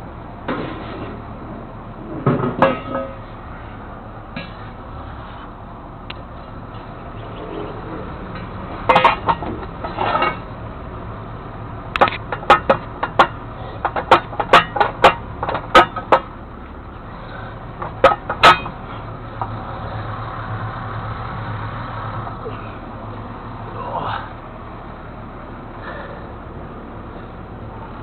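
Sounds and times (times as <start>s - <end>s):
low steady hum: 0.0s - 28.0s
metal clanking on metal: 2.1s - 3.3s, 4.3s - 4.7s, 6.7s - 10.5s, 12.0s - 16.4s, 17.2s - 19.6s.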